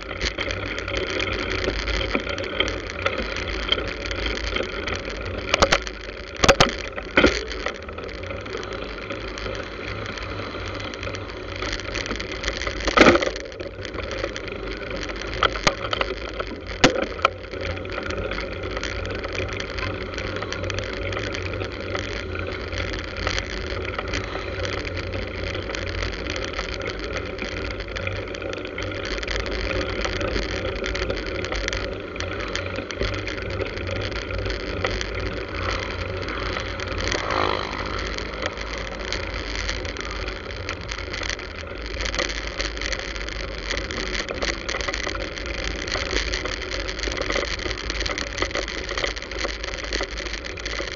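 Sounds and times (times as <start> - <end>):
deep rumble: 0.0 - 50.9
road noise: 0.0 - 50.9
rushing wind: 31.9 - 42.9.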